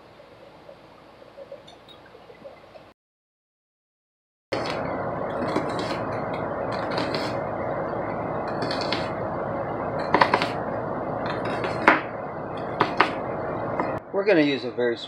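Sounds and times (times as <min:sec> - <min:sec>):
steady background hum: 0:00.0 - 0:02.9, 0:04.5 - 0:15.0
knife chopping on wooden board: 0:10.1 - 0:10.6, 0:11.3 - 0:12.0, 0:12.8 - 0:13.2.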